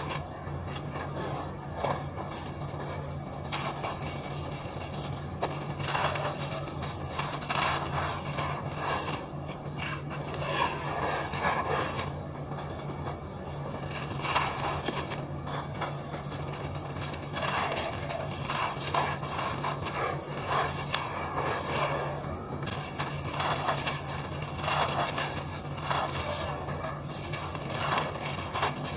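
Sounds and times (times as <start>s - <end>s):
dry grit crunching in hands: 0.0s - 28.9s
grit pouring onto floor: 13.6s - 28.9s.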